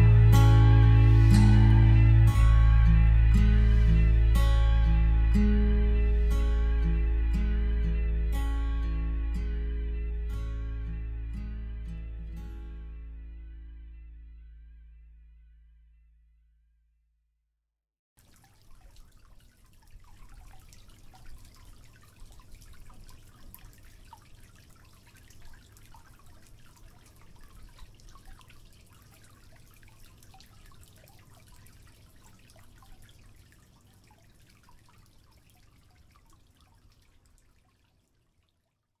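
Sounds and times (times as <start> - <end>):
low steady rumble: 0.0 - 16.6
water dripping and trickling: 18.2 - 39.0.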